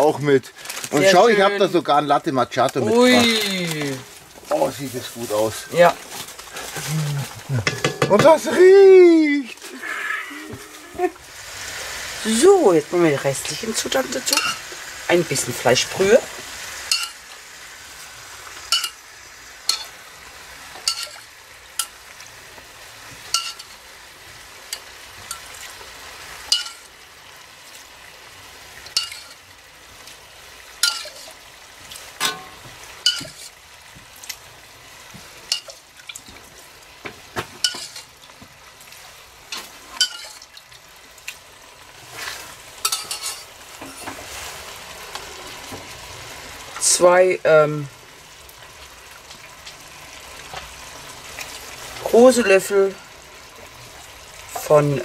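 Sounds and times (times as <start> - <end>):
peppers sizzling in a pot: 0.0 - 55.0
metal spoon scraping pots: 7.6 - 8.5, 20.8 - 21.9, 29.0 - 29.4, 30.8 - 31.3, 37.6 - 38.1, 39.5 - 40.4, 42.8 - 44.3.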